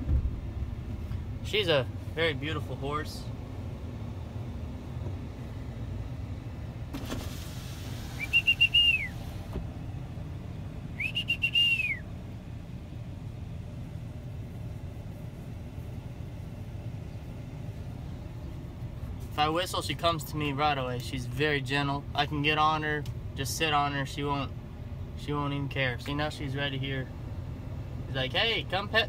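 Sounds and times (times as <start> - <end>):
man whistling: 8.2 - 9.2, 11.0 - 12.1.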